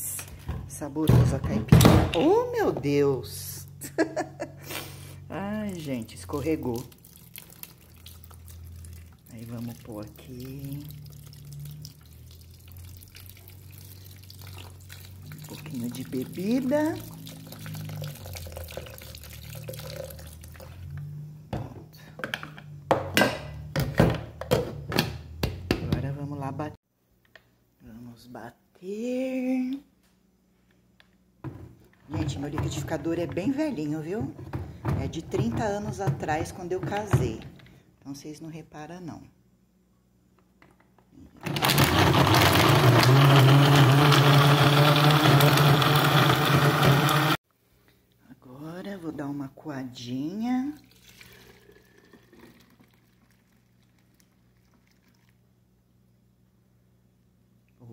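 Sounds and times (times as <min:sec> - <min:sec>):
liquor pouring into blender jar: 0:17.0 - 0:21.0, 0:50.8 - 0:55.4
blender jar knocks and clunks: 0:31.4 - 0:37.6
blender motor running: 0:41.4 - 0:47.4.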